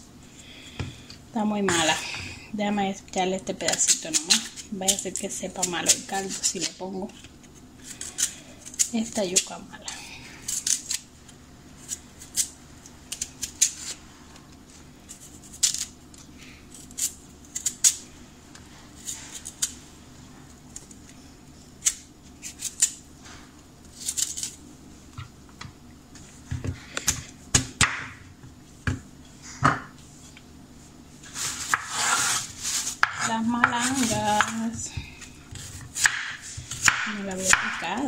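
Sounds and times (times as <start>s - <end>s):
knife scraping on cutting board: 31.3s - 34.6s.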